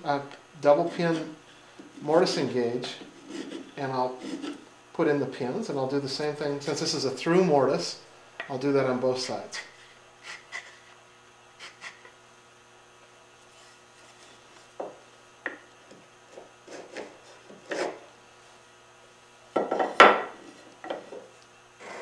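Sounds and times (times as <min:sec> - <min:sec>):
gauge scraping wood: 0:00.8 - 0:01.4, 0:02.0 - 0:04.6, 0:16.4 - 0:18.0, 0:21.8 - 0:22.0.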